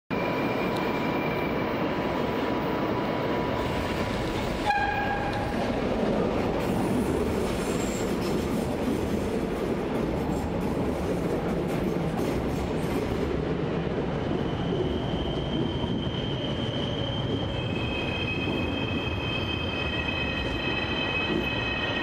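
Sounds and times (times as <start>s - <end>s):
train wheels rumbling on rails: 0.2s - 22.0s
train horn toot: 4.6s - 5.6s.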